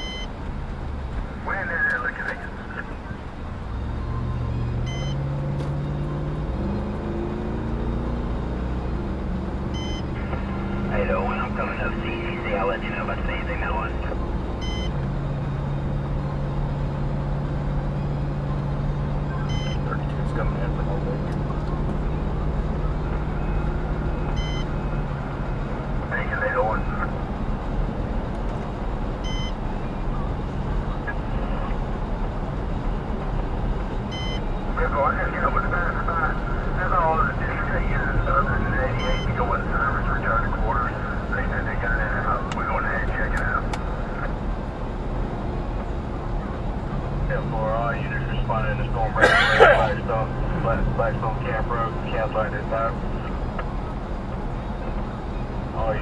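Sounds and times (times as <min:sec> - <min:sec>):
high electronic beep: 0:00.0 - 0:00.3, 0:04.8 - 0:05.3, 0:09.7 - 0:10.2, 0:14.6 - 0:14.9, 0:19.4 - 0:19.9, 0:24.3 - 0:24.7, 0:29.2 - 0:29.6, 0:34.1 - 0:34.4, 0:39.0 - 0:39.4
vehicle engine accelerating: 0:00.0 - 0:56.0.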